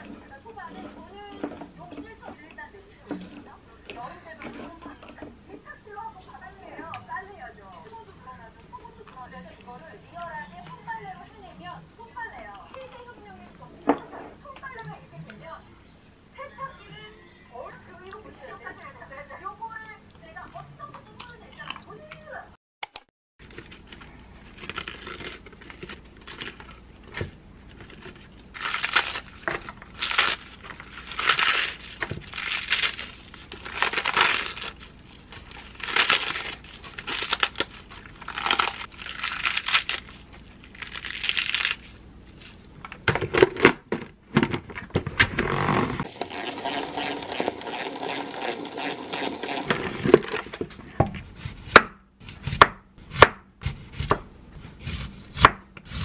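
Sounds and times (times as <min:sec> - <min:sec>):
lettuce leaves ripping: 0:23.5 - 0:42.7.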